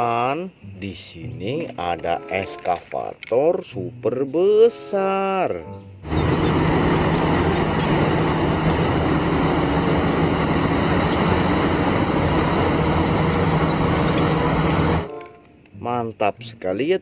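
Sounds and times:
excavator running under load: 6.0s - 15.2s.

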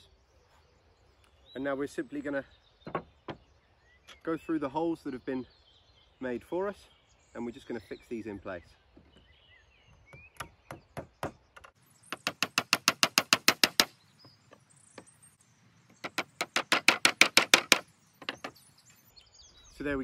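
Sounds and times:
hammer driving nails: 10.1s - 14.0s, 16.0s - 18.6s.

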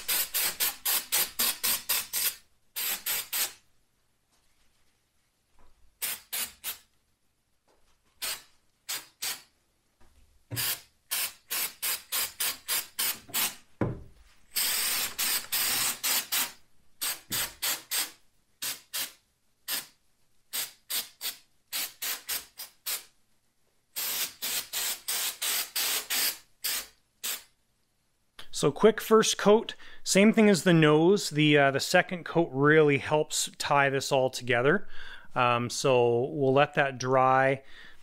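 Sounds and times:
aerosol spray puffs: 0.0s - 3.6s, 6.0s - 6.9s, 8.2s - 9.5s, 10.5s - 13.6s, 14.5s - 23.1s, 24.0s - 27.5s.

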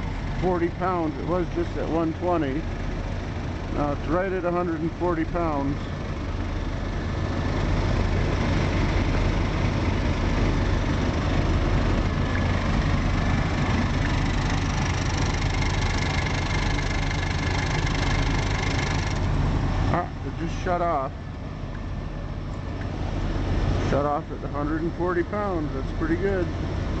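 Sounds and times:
air compressor running: 13.6s - 19.3s.

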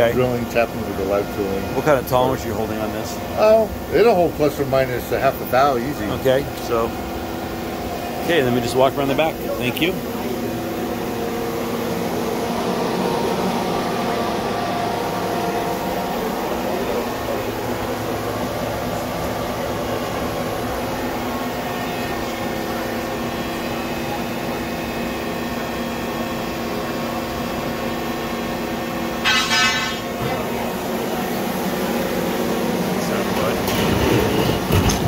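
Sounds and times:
machine hum with tones: 0.0s - 35.0s
short high-pitched ring: 29.2s - 30.2s.

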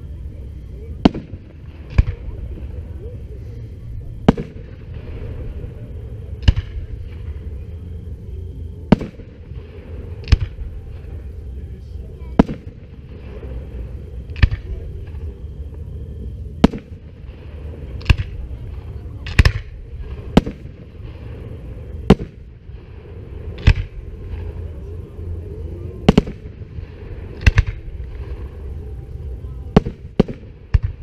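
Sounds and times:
low background rumble: 0.0s - 31.0s
firework shells bursting: 19.2s - 24.6s.

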